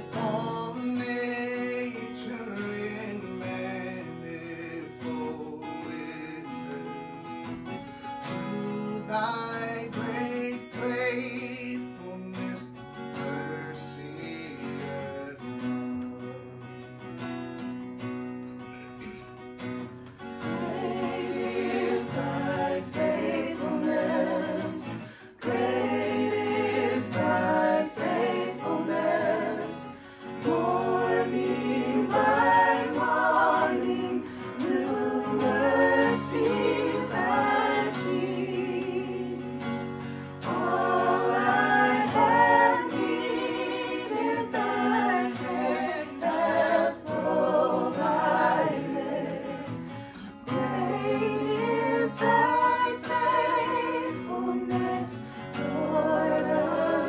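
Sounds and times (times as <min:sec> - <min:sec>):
people singing praise song: 0:00.0 - 0:04.3, 0:20.4 - 0:57.0
guitar accompaniment: 0:00.0 - 0:57.0.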